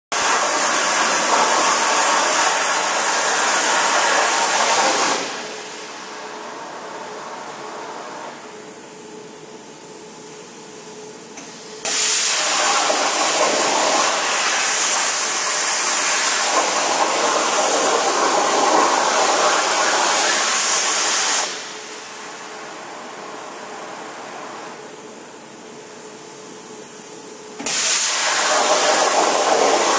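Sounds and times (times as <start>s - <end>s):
plasma cutter arc hissing: 0.2s - 8.4s, 11.4s - 22.8s, 27.6s - 29.9s
steady hum: 0.2s - 29.9s.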